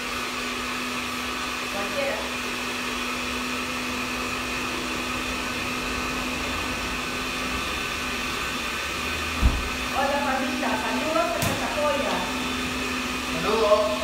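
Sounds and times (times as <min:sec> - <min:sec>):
countertop blender running: 0:00.0 - 0:14.0
thump: 0:09.4 - 0:09.7.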